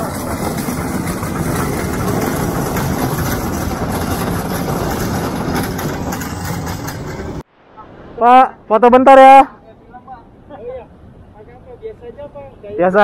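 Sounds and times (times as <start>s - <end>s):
engine running: 0.0s - 7.4s
city street noise: 0.0s - 13.0s.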